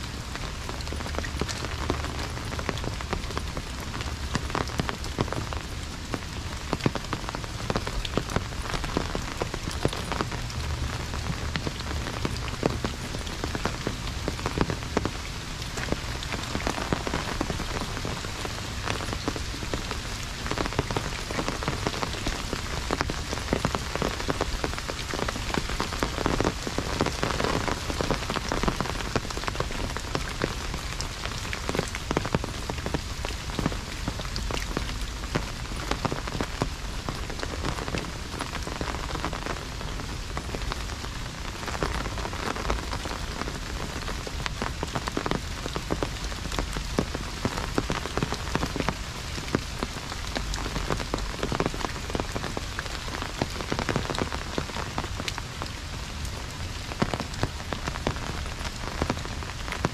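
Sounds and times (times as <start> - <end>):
heavy rain drumming on umbrella: 0.0 - 59.9.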